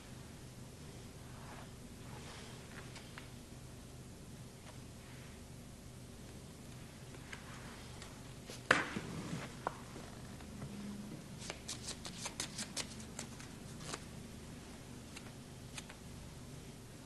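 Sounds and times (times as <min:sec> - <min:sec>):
playing cards shuffled: 0:11.4 - 0:14.1.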